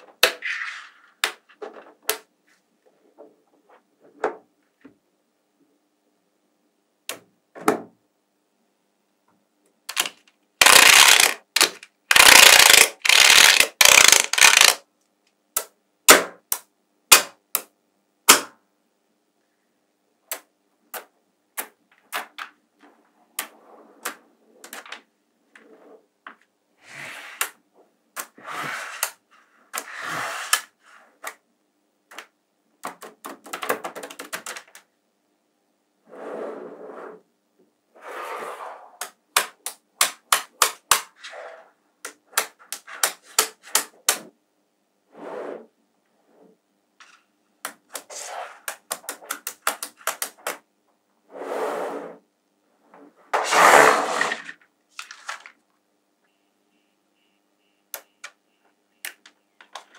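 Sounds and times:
balls rattling and sliding: 0.0 - 4.3, 9.9 - 14.8, 21.9 - 31.4, 40.2 - 44.3, 45.1 - 50.6, 51.3 - 55.7
magnetic balls clicking together: 9.9 - 14.8, 47.6 - 50.6.

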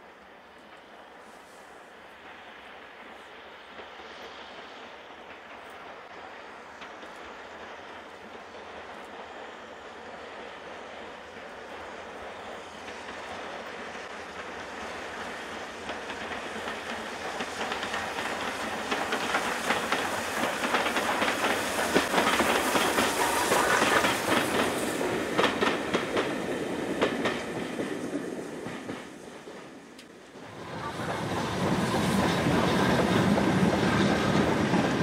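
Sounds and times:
train passing: 0.0 - 35.0
wheels clicking over rail joints: 12.6 - 35.0.

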